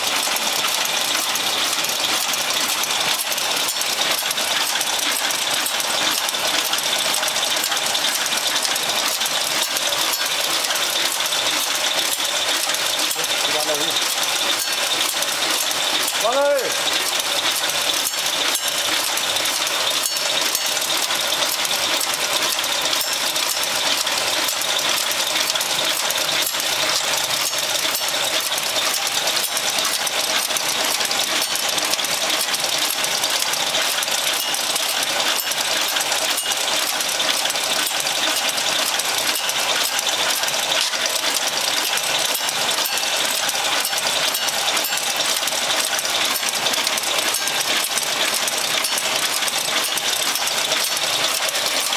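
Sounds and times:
machine clattering: 0.0 - 51.9.

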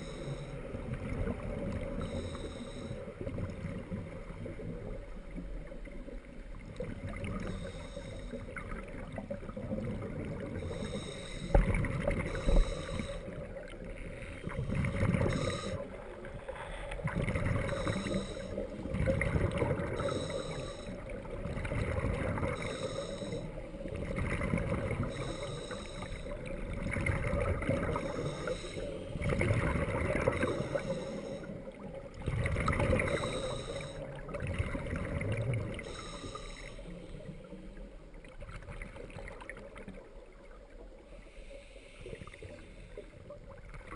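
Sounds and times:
regulator hiss on inhale: 0.0 - 0.8, 1.9 - 3.4, 7.4 - 8.6, 10.5 - 18.9, 19.8 - 21.3, 22.4 - 24.1, 24.9 - 26.8, 27.6 - 29.3, 29.9 - 31.9, 32.9 - 34.2, 35.7 - 38.0, 41.0 - 43.4
exhaled bubbles rumbling: 8.4 - 10.6, 11.5 - 20.2, 21.0 - 22.8, 23.6 - 25.4, 26.3 - 35.9.

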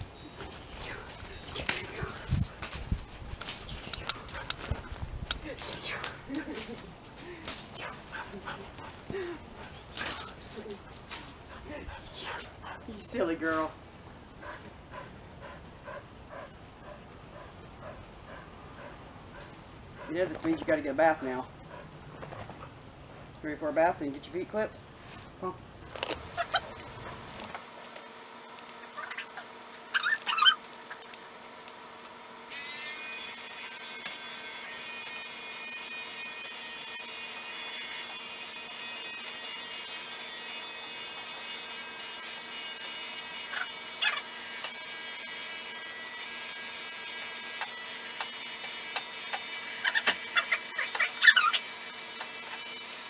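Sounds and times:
electric clippers humming: 0.0 - 13.3, 30.1 - 53.0.

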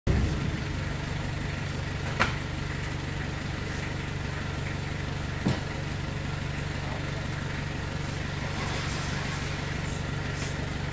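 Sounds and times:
truck engine idling: 0.1 - 10.9.

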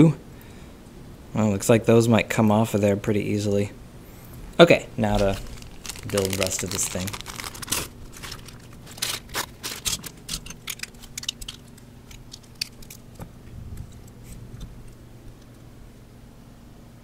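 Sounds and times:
plastic blocks clicking together: 5.2 - 13.0.

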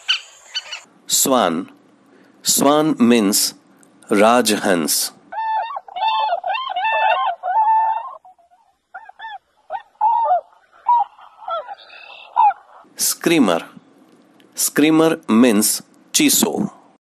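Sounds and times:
swans calling: 0.0 - 0.9, 5.4 - 12.9.

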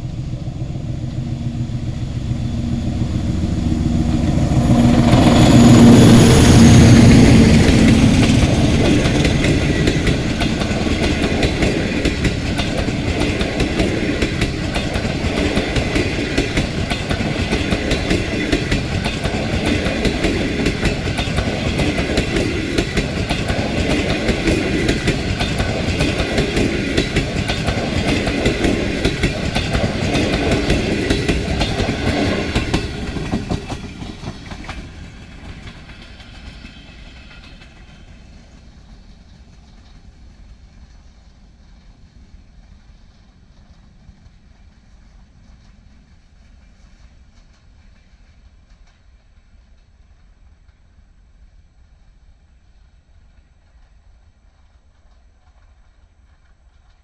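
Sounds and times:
train wheels clattering over rail joints: 4.4 - 41.8.

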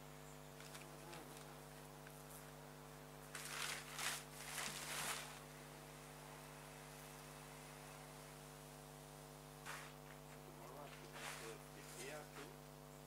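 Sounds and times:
low electrical hum: 0.0 - 13.0
rustling noise: 3.3 - 5.4, 11.0 - 12.1.

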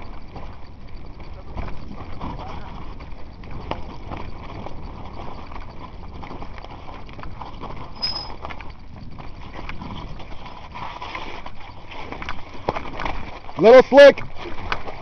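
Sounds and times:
mountain bike rattling over rocks: 0.0 - 15.0
short high squeal: 8.0 - 8.4.

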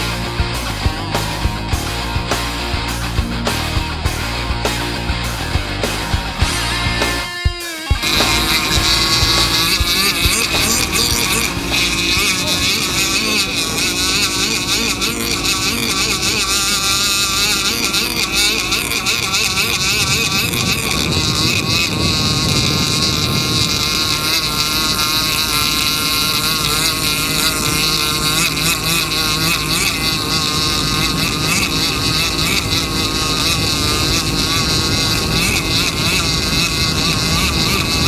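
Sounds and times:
boat engine drone: 0.0 - 7.3, 8.0 - 38.0
small gas engine running high: 0.0 - 38.0
wind on microphone: 8.0 - 38.0.

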